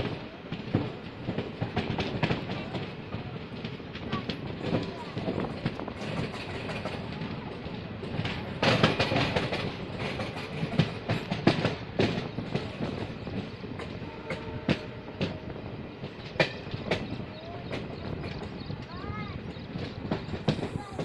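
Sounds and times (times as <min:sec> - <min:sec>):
train rumble: 0:00.0 - 0:21.0
wheels clicking over rail joints: 0:00.0 - 0:21.0.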